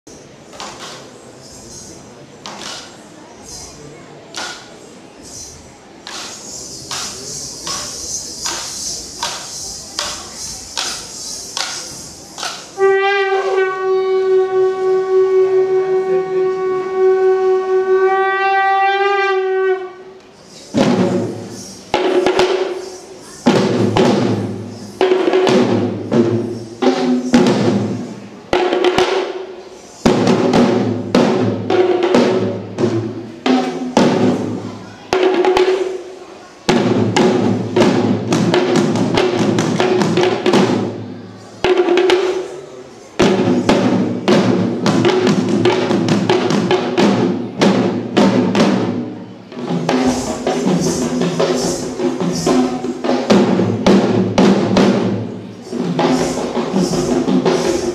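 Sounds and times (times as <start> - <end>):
traditional drums played together: 6.0 - 18.2, 20.7 - 42.6, 43.2 - 57.9.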